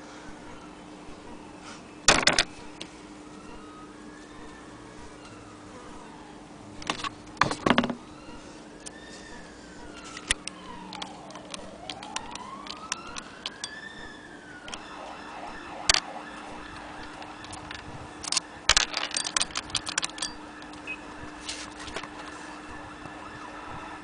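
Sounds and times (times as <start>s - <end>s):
sewing machine parts clicking: 17.1s - 20.8s.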